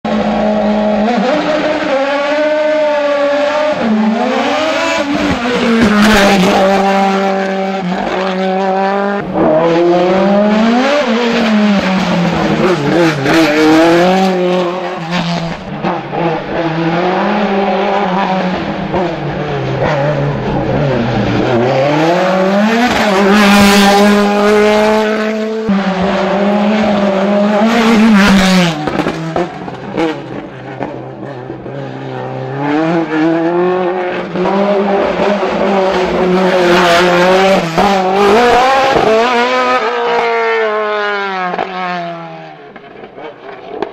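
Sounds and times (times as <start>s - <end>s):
race car engine revving: 0.1s - 43.9s.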